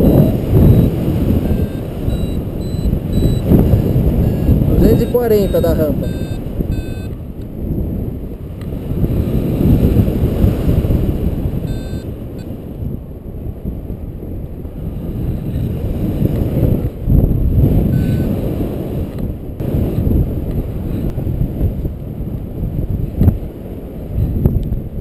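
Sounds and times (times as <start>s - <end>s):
short electronic beep: 0.0s - 7.1s, 11.7s - 12.1s, 18.0s - 18.3s
wind rushing over microphone: 0.0s - 25.0s.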